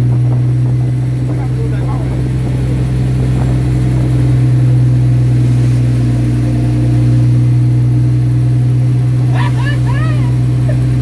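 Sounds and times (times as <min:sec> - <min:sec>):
boat engine droning: 0:00.0 - 0:11.0
seawater washing across deck: 0:00.0 - 0:11.0.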